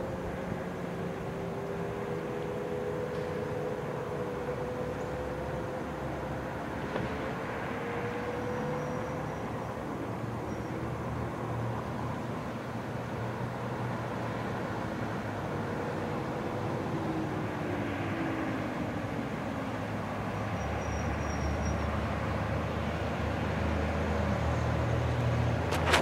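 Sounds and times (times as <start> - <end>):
distant warning sirens: 0.0 - 12.3
city traffic rumble: 0.0 - 26.0.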